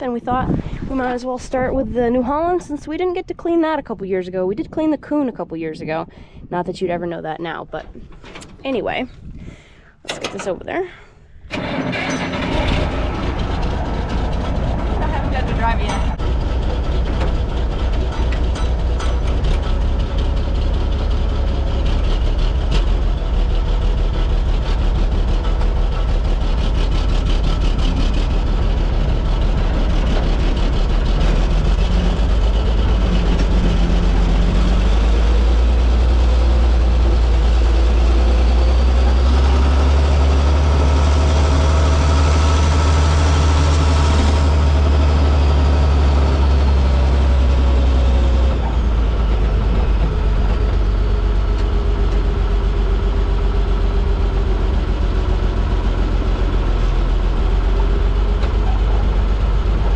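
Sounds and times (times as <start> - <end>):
tractor engine running: 0.0 - 59.9
rattling: 7.8 - 41.4.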